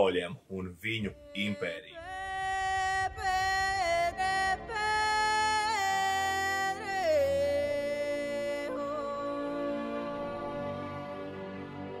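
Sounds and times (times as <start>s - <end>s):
solo voice singing held notes: 0.9s - 11.5s
low drone: 1.1s - 10.9s.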